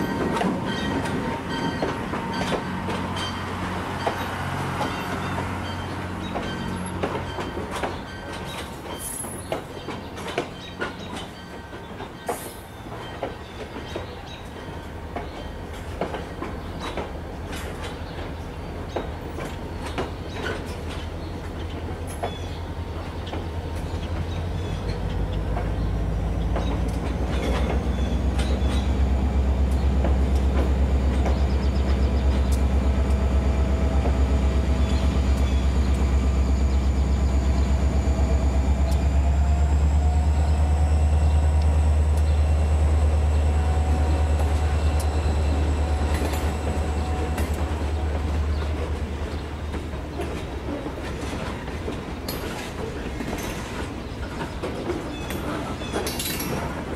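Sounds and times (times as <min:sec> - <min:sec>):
wheels clicking over rail joints: 0:00.0 - 0:56.9.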